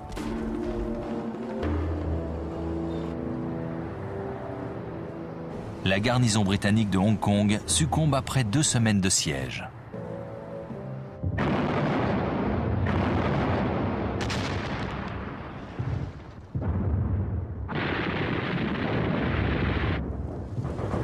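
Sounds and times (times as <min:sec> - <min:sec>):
gunfire: 0:11.4 - 0:16.8
artillery fire: 0:11.4 - 0:21.0.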